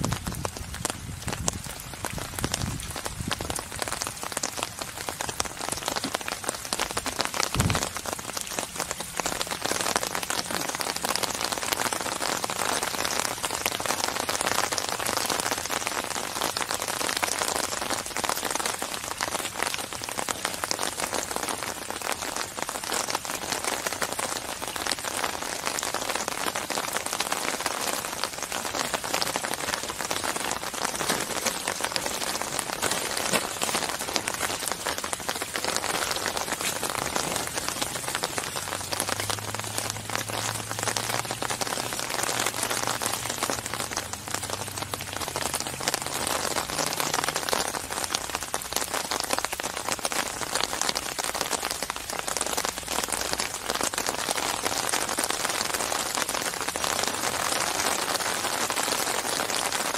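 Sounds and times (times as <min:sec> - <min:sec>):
rain falling on lake water: 0:00.0 - 0:59.9
low thud: 0:07.5 - 0:08.1.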